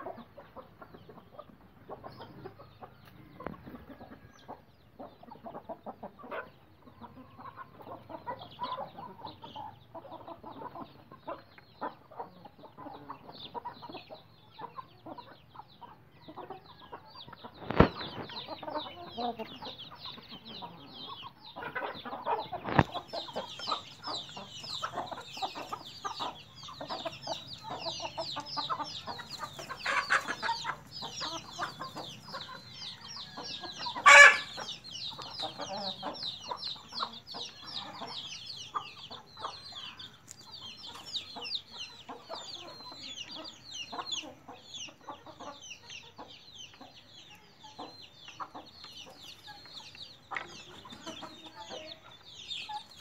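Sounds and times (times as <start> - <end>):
chicks peeping: 0.0 - 53.0
hens clucking: 0.0 - 53.0
loud chicken call: 33.8 - 34.7.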